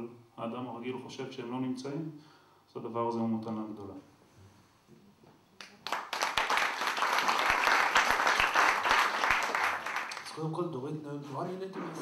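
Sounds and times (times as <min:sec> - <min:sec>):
audience applauding: 0:05.6 - 0:10.4.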